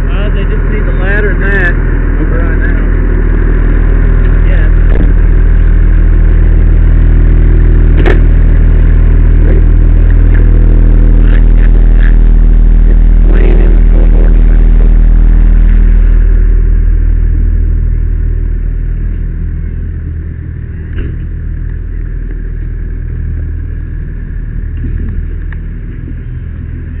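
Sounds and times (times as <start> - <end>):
fire engine rumbling: 0.0 - 27.0.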